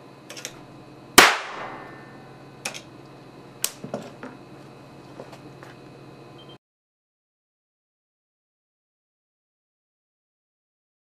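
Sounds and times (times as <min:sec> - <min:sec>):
loud sharp electric crack: 0:01.2 - 0:02.2.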